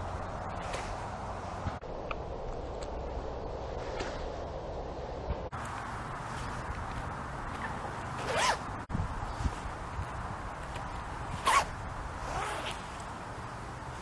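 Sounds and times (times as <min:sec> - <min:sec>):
metal zipper: 0:07.6 - 0:08.6, 0:11.4 - 0:12.8.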